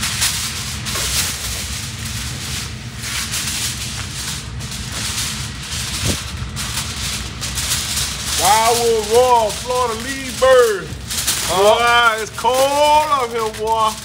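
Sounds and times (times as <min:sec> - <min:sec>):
aluminum foil crinkling: 0:00.0 - 0:14.0
wind rumble on microphone: 0:04.4 - 0:08.1.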